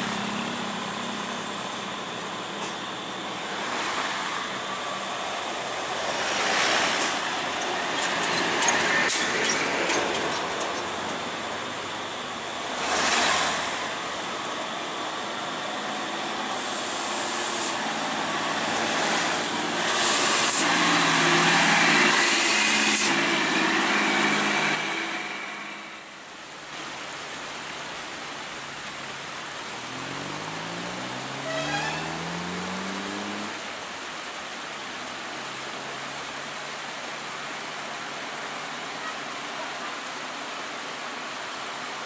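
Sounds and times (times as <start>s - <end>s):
tow truck engine running: 0.0s - 26.6s
road traffic: 0.0s - 42.0s.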